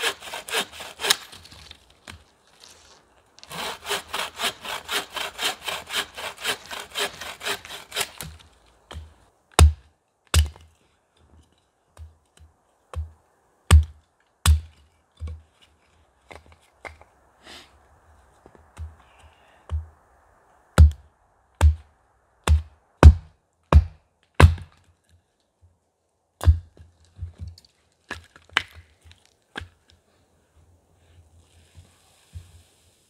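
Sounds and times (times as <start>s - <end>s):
axe chopping firewood: 3.5s - 10.7s, 12.0s - 13.1s, 13.7s - 15.4s, 20.8s - 21.0s, 21.6s - 24.8s, 26.4s - 27.4s.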